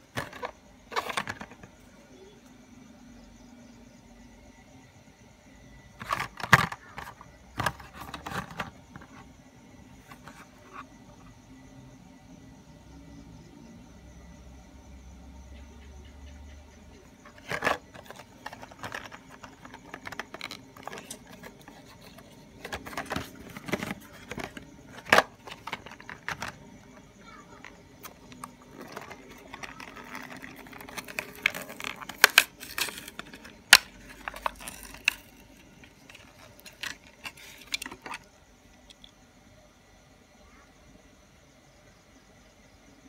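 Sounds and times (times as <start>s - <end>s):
plastic blister crackling: 17.3s - 27.0s, 27.6s - 35.4s.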